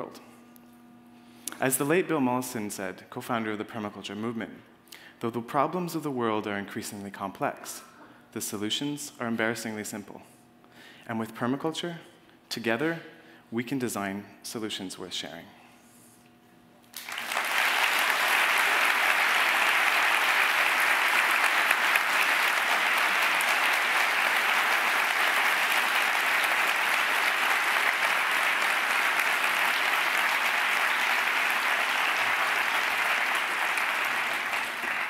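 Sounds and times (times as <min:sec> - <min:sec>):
large audience applauding: 0:16.9 - 0:35.0.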